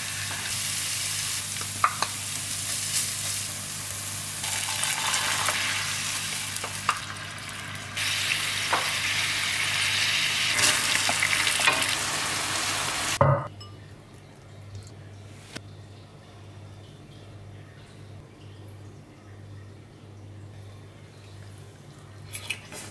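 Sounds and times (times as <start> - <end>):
sauce sizzling in frying pan: 0.0 - 13.2.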